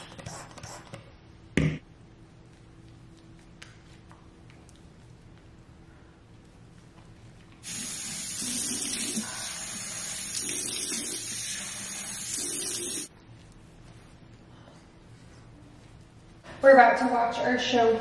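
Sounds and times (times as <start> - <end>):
sink tap running: 7.6 - 13.1.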